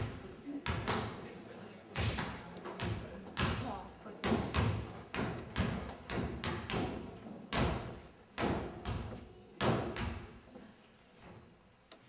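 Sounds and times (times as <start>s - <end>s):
basketballs bouncing on stage floor: 0.0s - 1.2s, 2.0s - 10.3s.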